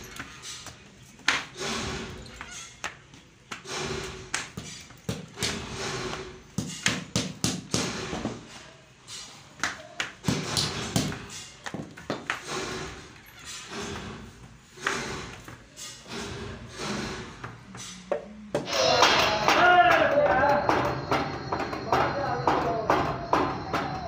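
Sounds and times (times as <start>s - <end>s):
flip-flops tapping and thudding: 9.6s - 12.9s.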